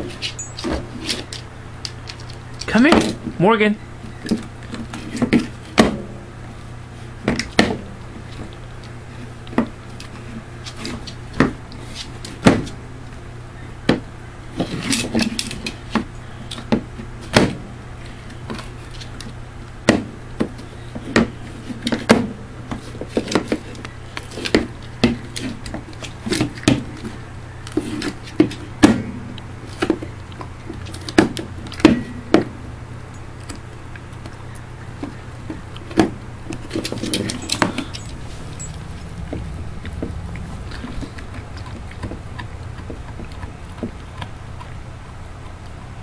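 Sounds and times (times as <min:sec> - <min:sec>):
dog gnawing a bone: 0:00.0 - 0:02.7, 0:14.5 - 0:46.0.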